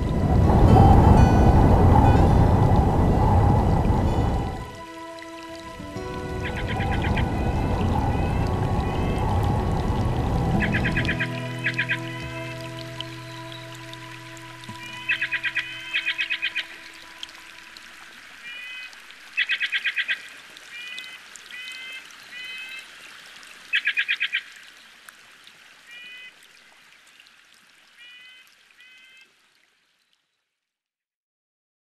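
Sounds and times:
steady hiss like running water: 0:00.0 - 0:30.4
bird calls: 0:06.2 - 0:17.5.

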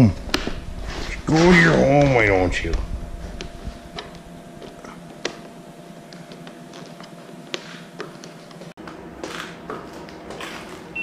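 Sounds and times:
faint hum: 0:00.0 - 0:11.0.

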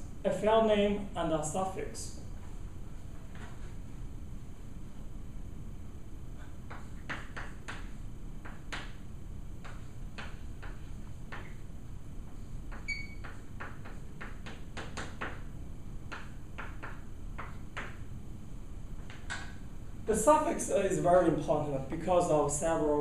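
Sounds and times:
low room hum: 0:00.0 - 0:23.0
chalk tapping and scraping: 0:06.6 - 0:09.0, 0:09.6 - 0:11.6, 0:12.3 - 0:15.5.

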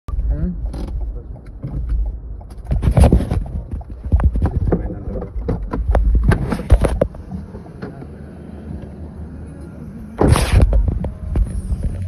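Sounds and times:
car interior rumble: 0:00.1 - 0:12.0
knocks and clatter: 0:00.6 - 0:07.2.

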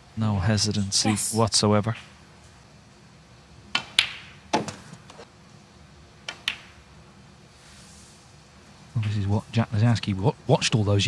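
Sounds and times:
quiet arena background: 0:00.0 - 0:11.0
snooker balls clicking: 0:06.3 - 0:06.8.

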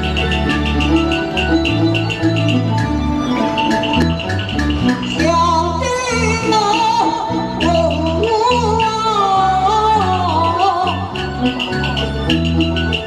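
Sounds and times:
ticking percussion beat: 0:00.0 - 0:09.4, 0:10.0 - 0:13.0
bass line: 0:00.0 - 0:13.0
person singing into a microphone: 0:05.1 - 0:11.5.

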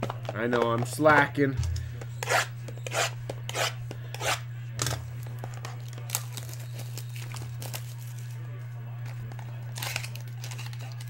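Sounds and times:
low electrical hum: 0:00.0 - 0:11.0
foil packs rustling: 0:05.2 - 0:08.4, 0:09.1 - 0:11.0.

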